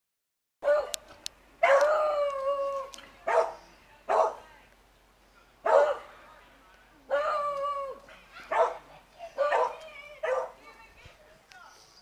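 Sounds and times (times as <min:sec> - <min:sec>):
dog barking and baying: 0:01.6 - 0:02.4, 0:03.3 - 0:04.4, 0:05.6 - 0:06.0, 0:07.1 - 0:10.6.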